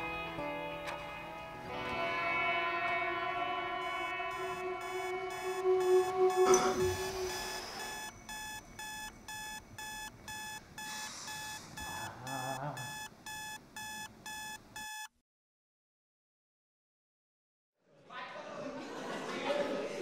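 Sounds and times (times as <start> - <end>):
electronic alarm beeping: 3.8 - 15.1.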